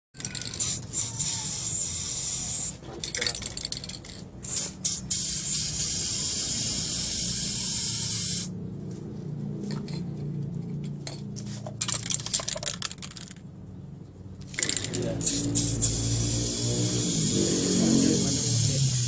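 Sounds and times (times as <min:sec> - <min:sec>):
spray can rattling clicks: 0:00.2 - 0:06.0, 0:11.7 - 0:13.4, 0:14.5 - 0:16.6
spray paint can hissing: 0:00.2 - 0:08.6, 0:14.5 - 0:19.0.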